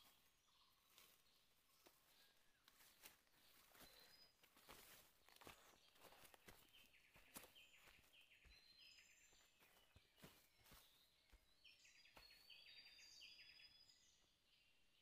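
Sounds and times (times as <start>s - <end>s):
footsteps on dry leaves: 0.0s - 11.4s.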